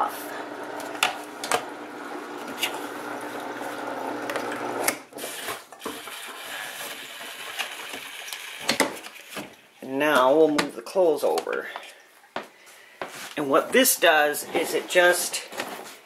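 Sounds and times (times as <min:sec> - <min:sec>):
washer motor hum: 0:00.0 - 0:05.3
water draining through hose: 0:00.3 - 0:09.9.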